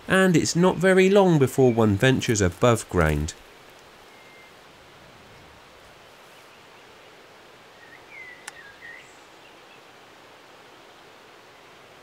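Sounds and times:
breeze rustling leaves: 0.0 - 12.0
bird chirping: 7.8 - 9.8.

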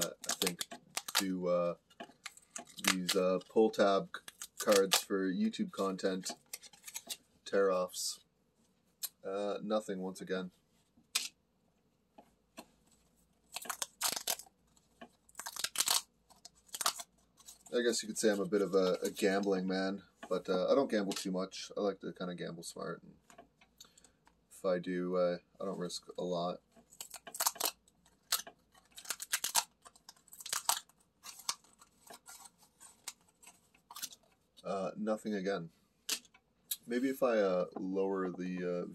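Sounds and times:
lottery ticket tabs ripping: 0.0 - 1.4, 2.1 - 3.4, 4.1 - 5.1, 13.5 - 14.5, 15.2 - 17.7, 26.9 - 34.3
paper tearing and crinkling: 0.0 - 1.4, 2.2 - 3.4, 4.2 - 5.1, 6.5 - 7.2, 13.5 - 14.5, 15.2 - 19.2, 26.9 - 34.3.

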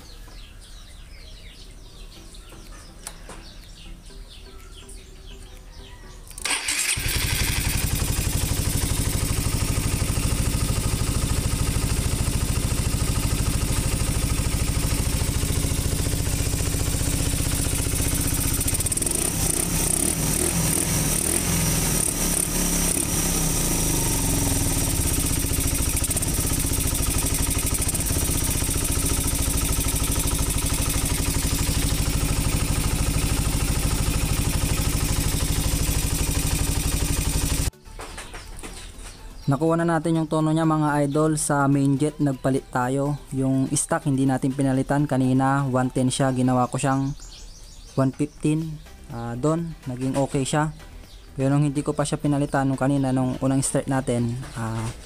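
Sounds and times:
motorcycle engine idling: 0.1 - 37.7.

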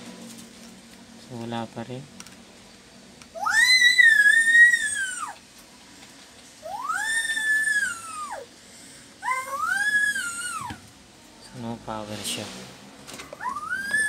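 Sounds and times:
high-pitched animal cries: 3.4 - 5.4, 6.6 - 8.5, 9.2 - 10.8, 13.4 - 14.0.

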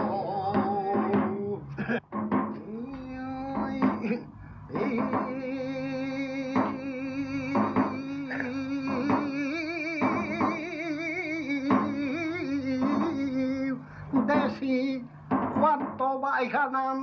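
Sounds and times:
man singing unaccompanied: 0.0 - 17.0
singer breathing: 4.3 - 4.8, 13.8 - 14.2.

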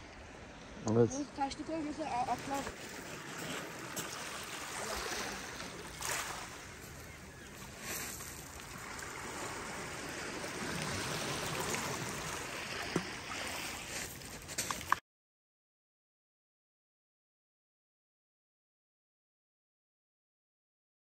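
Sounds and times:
small waves washing over pebbles: 1.8 - 15.0.

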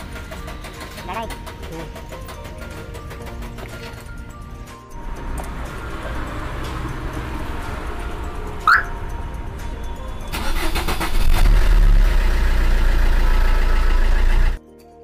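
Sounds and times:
car engine starter cranking: 0.0 - 4.4, 9.9 - 14.6
car engine rumbling: 0.0 - 14.6.

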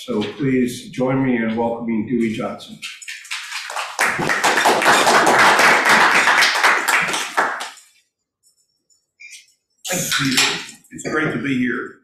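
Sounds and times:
audience applauding: 3.0 - 7.9.

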